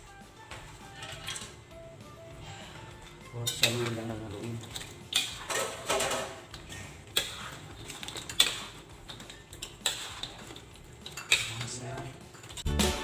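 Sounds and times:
spoon stirring and scraping wok: 0:00.8 - 0:01.6, 0:02.3 - 0:12.8.

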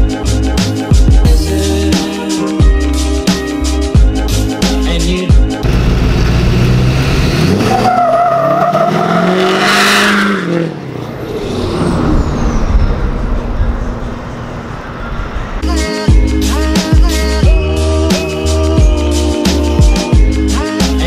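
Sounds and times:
pickup truck engine revving: 0:05.6 - 0:14.8.

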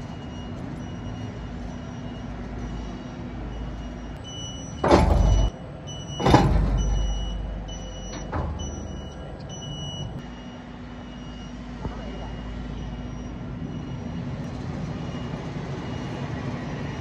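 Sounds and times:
high warning beeps: 0:00.0 - 0:17.0
tractor humming: 0:00.0 - 0:17.0
ringing metallic clank: 0:04.7 - 0:05.6.

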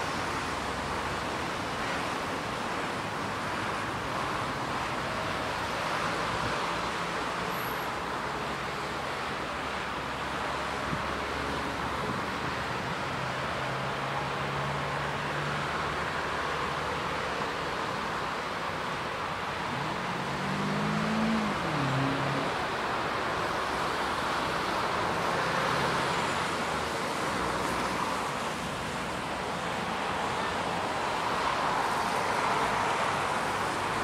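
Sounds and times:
vehicle engine humming: 0:19.2 - 0:23.2.

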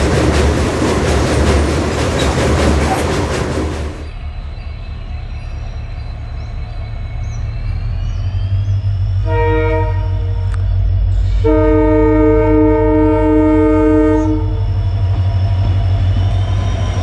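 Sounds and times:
locomotive rumbling: 0:00.0 - 0:17.0
locomotive horn blasts: 0:09.2 - 0:10.6, 0:11.4 - 0:14.6.

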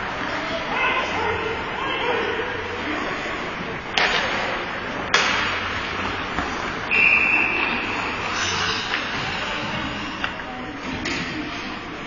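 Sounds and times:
referee whistle blast: 0:06.9 - 0:07.9.

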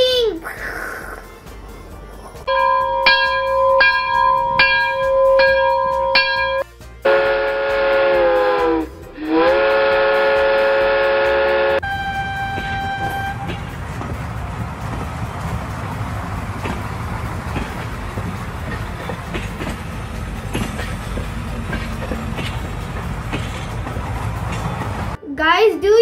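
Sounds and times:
multi-note train horn: 0:02.5 - 0:13.8
single-note whistle: 0:11.8 - 0:13.5
steady whistle tone with clicks: 0:11.8 - 0:13.6.

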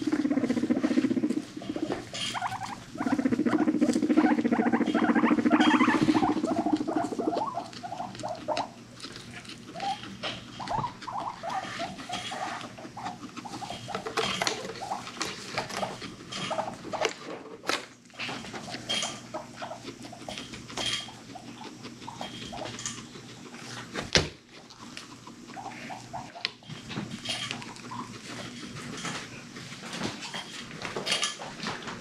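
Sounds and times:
guinea pig squeaks and chirps: 0:00.0 - 0:17.1, 0:17.7 - 0:23.8, 0:24.8 - 0:28.9
guinea pig rumbling: 0:00.0 - 0:32.0.

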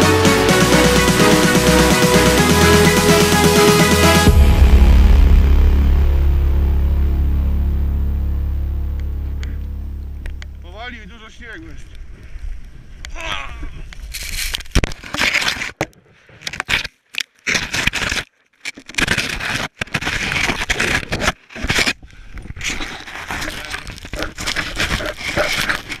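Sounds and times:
snow scraping against camera: 0:13.5 - 0:15.8, 0:22.6 - 0:26.0.

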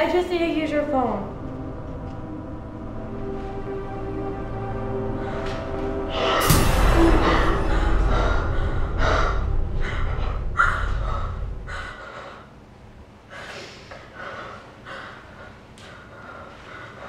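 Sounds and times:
low rumbling drone: 0:00.0 - 0:13.3.

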